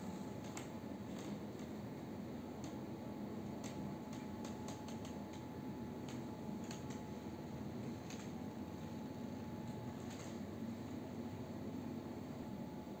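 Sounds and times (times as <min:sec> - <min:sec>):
light irregular clicks: 0:00.4 - 0:01.7, 0:03.6 - 0:07.1, 0:08.0 - 0:08.4.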